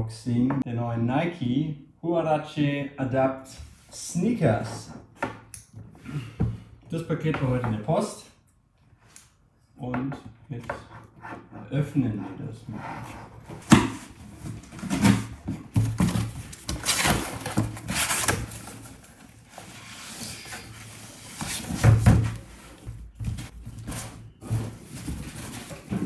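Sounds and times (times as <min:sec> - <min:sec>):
cardboard flaps rustling: 0:13.6 - 0:26.0.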